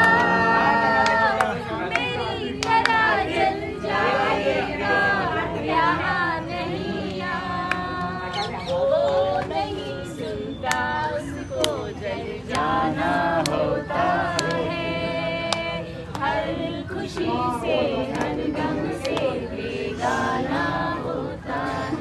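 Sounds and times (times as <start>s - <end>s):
women singing together: 0.0s - 22.0s
sharp claps or taps: 14.3s - 14.6s.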